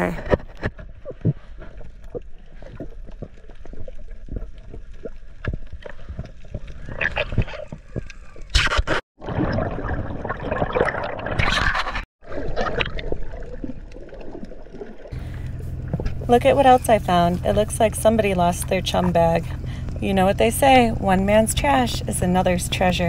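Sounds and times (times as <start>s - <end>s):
water gurgling: 0.0s - 23.0s
underwater clicks and crackle: 0.1s - 9.0s, 10.2s - 16.3s
bubbling and splashing: 0.4s - 19.9s.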